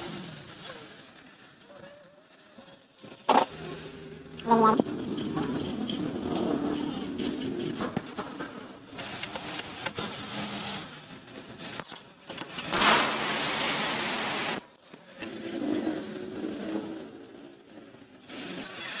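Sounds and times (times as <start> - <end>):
metal engine parts clinking: 0.0 - 12.8
steady hiss: 12.7 - 14.7.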